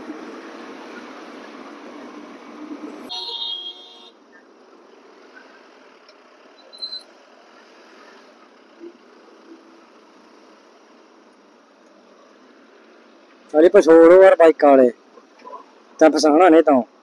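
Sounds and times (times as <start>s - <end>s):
road traffic: 0.0s - 17.0s
vehicle horn honking: 3.0s - 4.2s.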